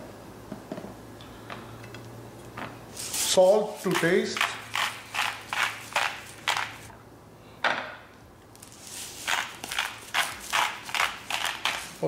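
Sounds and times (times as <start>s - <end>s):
salt grinder grinding: 3.9s - 6.8s, 9.0s - 12.0s.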